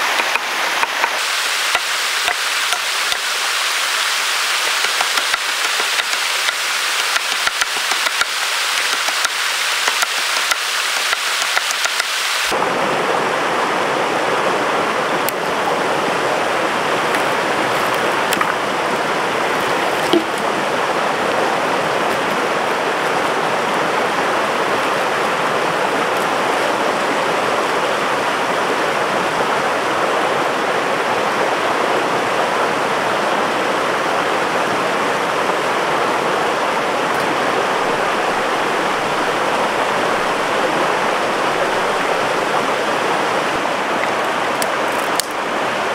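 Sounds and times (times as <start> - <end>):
high hiss with crackles: 0.0 - 12.5
stream water rushing over rocks: 0.0 - 45.9.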